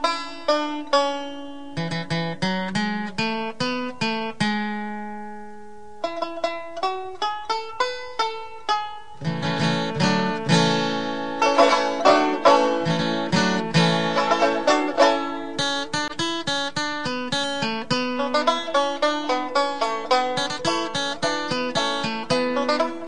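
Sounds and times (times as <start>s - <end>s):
plucked strings music: 0.0s - 23.0s.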